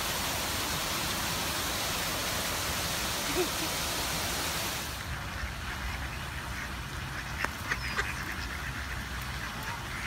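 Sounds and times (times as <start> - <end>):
ducks quacking: 5.1 - 10.0.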